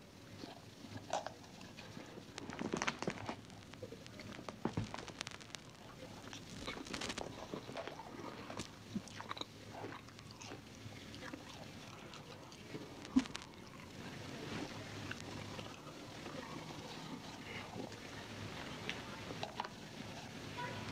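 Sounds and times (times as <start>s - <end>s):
chewing: 0.2s - 20.4s
plastic container crinkling and clicking: 1.1s - 7.8s, 13.1s - 13.6s.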